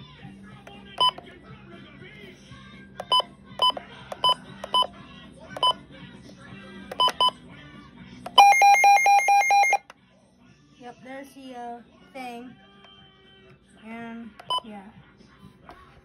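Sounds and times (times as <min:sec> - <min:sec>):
short electronic key beeps: 0:06.9 - 0:07.4
rapidly pulsing alarm beep: 0:08.4 - 0:09.8.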